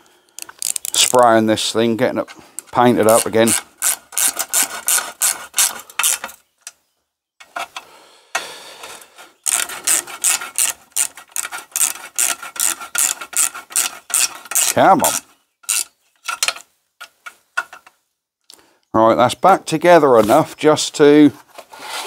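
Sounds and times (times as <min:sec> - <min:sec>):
ratchet wrench clicking: 0:00.4 - 0:01.2, 0:03.0 - 0:06.3, 0:09.4 - 0:16.6.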